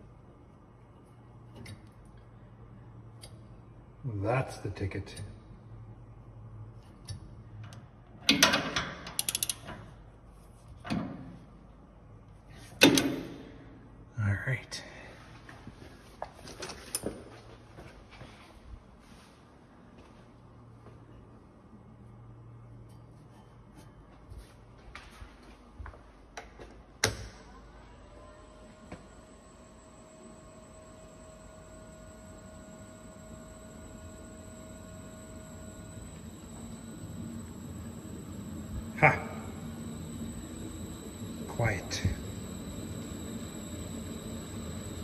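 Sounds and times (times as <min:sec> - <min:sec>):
ratchet wrench clicks: 0:09.2 - 0:09.6
electric motor hum: 0:28.4 - 0:45.0.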